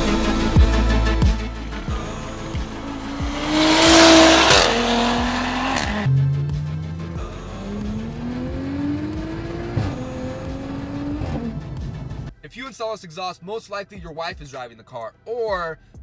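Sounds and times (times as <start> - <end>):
music with steady beat: 0.0 - 13.2, 13.8 - 16.0
car engine accelerating: 0.8 - 12.3.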